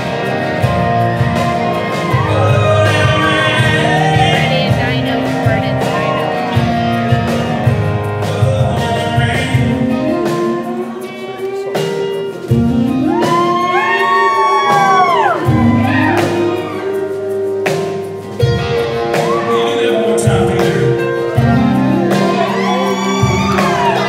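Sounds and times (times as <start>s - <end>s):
keyboard: 0.0s - 24.0s
strummed acoustic guitars: 0.0s - 24.0s
man singing: 1.6s - 6.6s, 8.0s - 12.0s, 19.2s - 24.0s.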